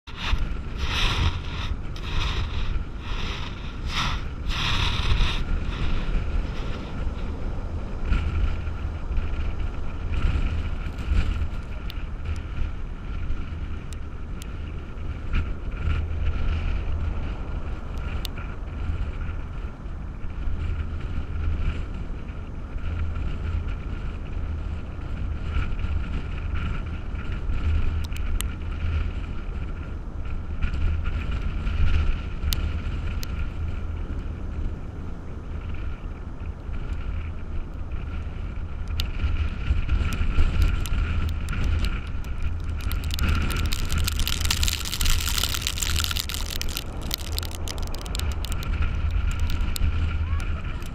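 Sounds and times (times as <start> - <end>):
wind buffeting microphone: 0.0 - 50.9
heavy surf hissing: 0.1 - 7.6
small ticks: 27.7 - 28.5, 31.8 - 33.5, 36.6 - 50.9.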